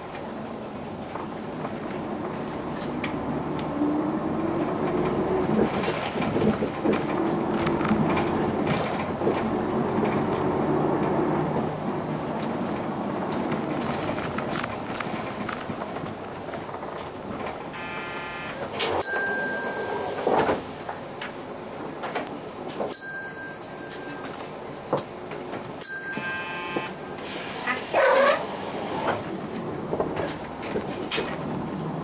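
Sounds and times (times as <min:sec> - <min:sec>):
bus interior running noise: 0:00.0 - 0:32.0
brief ringing tone: 0:17.7 - 0:20.7, 0:22.9 - 0:24.5, 0:25.8 - 0:27.4.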